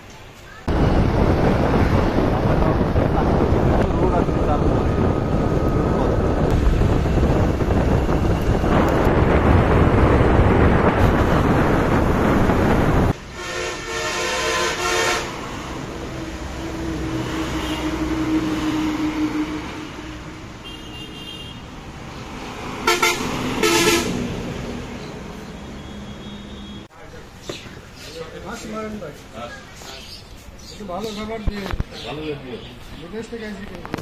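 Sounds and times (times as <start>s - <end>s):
wind and road noise: 0.0s - 34.0s
vehicle horn: 13.3s - 15.4s, 17.4s - 18.2s, 20.6s - 21.6s, 22.8s - 24.2s, 25.6s - 26.9s
vehicle passing: 15.2s - 20.6s, 21.7s - 25.9s.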